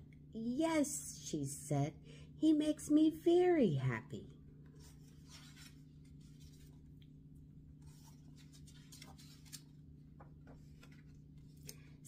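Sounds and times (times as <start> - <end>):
low room hum: 0.0 - 12.0
paper page turning: 4.6 - 7.1, 7.8 - 12.0.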